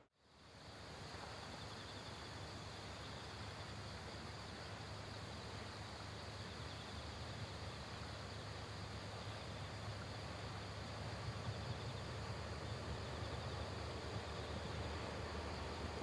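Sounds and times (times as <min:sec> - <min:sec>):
insects chirping in fast trill: 0:00.2 - 0:16.0
distant diesel locomotive drone: 0:07.5 - 0:16.0.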